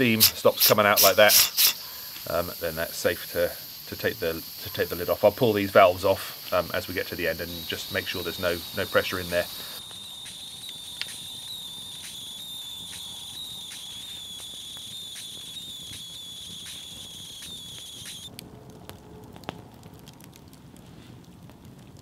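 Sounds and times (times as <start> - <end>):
pressure cooker steam whistle: 0.0 - 2.2, 7.6 - 18.3
campfire crackling and popping: 0.0 - 22.0.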